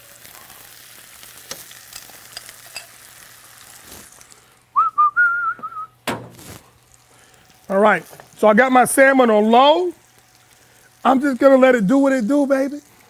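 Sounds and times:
couscous sizzling in oil: 0.0 - 4.6, 6.3 - 13.0
tongs clicking against pan: 1.4 - 3.0.

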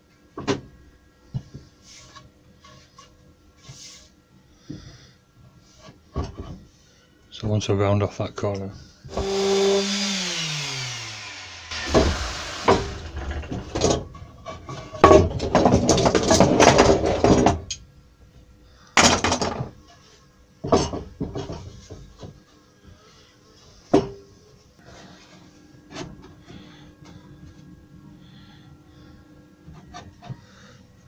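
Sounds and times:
power tool winding down: 9.1 - 13.6
rough scraping and rasping: 9.9 - 13.7.

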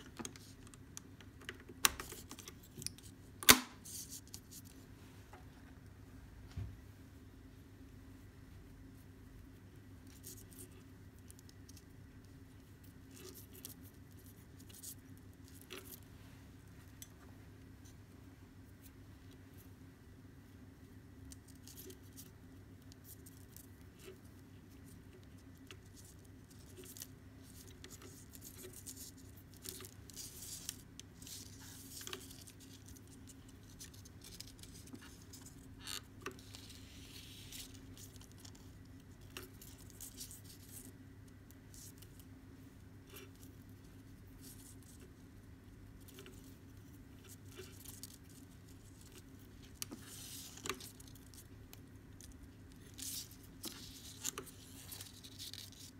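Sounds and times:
cord rustling and ticking: 9.9 - 19.8, 21.0 - 55.9.

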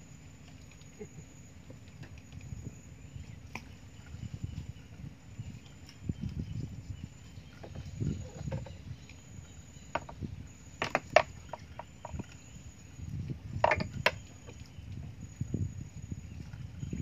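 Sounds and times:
low steady rumble: 0.0 - 17.0
fishing tackle knocks and clicks: 13.6 - 14.2.

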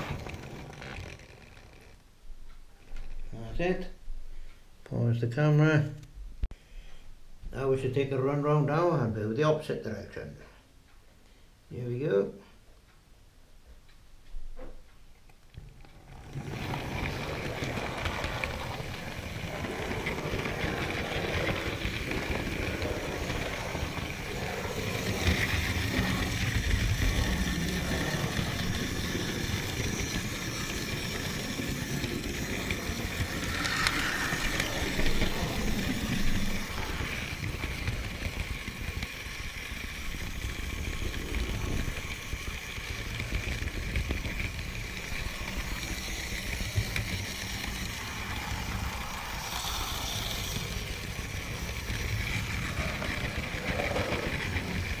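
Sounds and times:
model train wheels and motor rumbling: 0.0 - 2.0, 15.3 - 55.0
clicking over rail joints: 0.0 - 3.2, 15.5 - 55.0.

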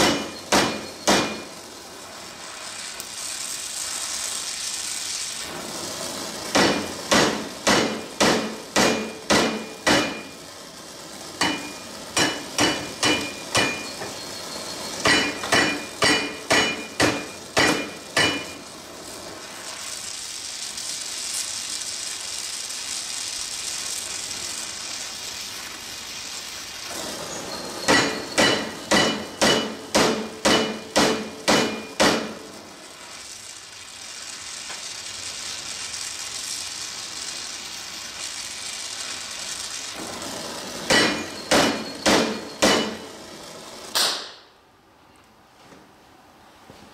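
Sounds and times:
torch flame hissing: 0.0 - 44.6
hammer blows on steel: 27.9 - 32.3, 40.9 - 43.1.

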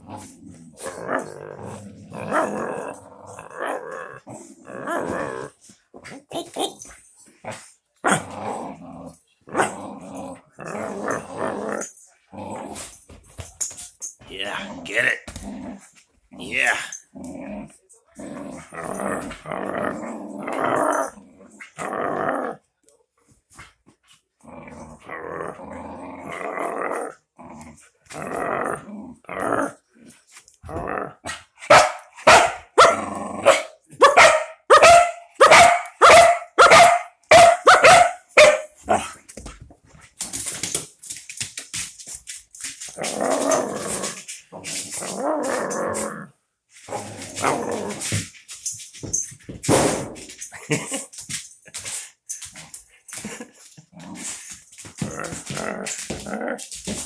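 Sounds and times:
dog play-growling: 0.0 - 22.6, 23.6 - 31.4, 33.0 - 33.5, 38.8 - 49.2, 51.7 - 57.0
dog barking: 31.7 - 39.0.

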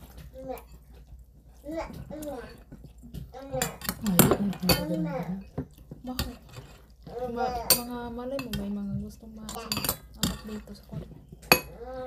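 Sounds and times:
metal spoons clinking on bowls: 3.4 - 11.8.

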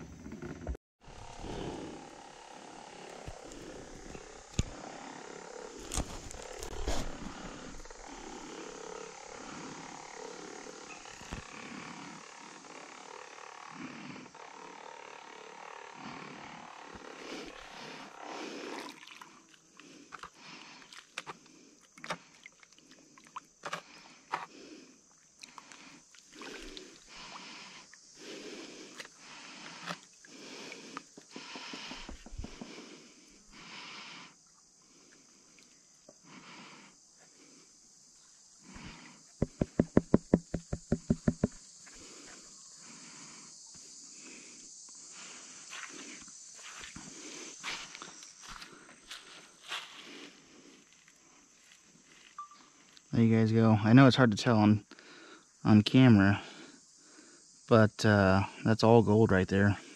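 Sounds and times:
high insect hiss: 1.0 - 59.9
sharp knocks: 39.4 - 41.6.

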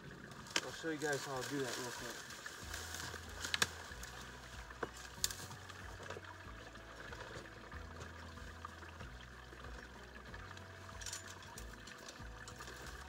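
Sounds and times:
footsteps rustling through dry brush: 0.2 - 8.3
twigs snapping: 0.4 - 6.2.

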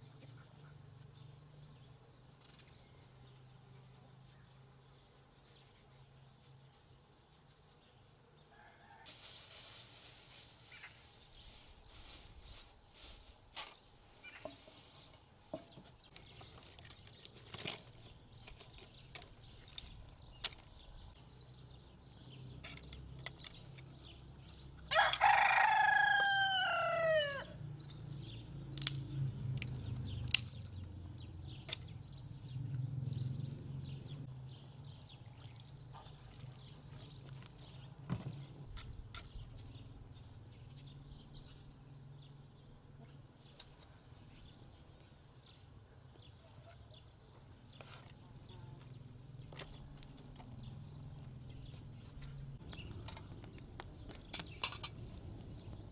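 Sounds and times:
rooster crowing: 24.9 - 27.6.

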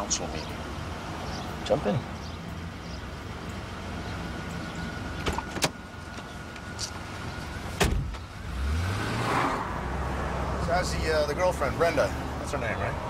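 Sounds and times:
car engine: 0.0 - 13.0
car door shutting: 5.2 - 6.6, 7.7 - 8.3.

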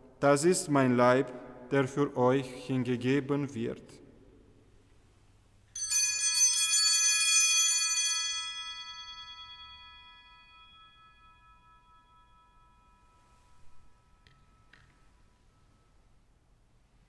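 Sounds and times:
altar bells jingling: 5.8 - 16.1.

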